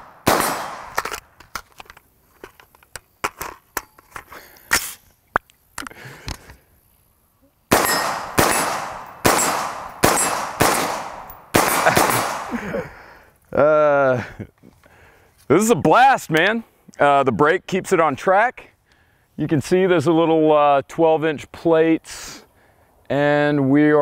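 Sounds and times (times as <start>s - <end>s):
rifle shots: 0.0s - 1.2s, 7.7s - 12.6s.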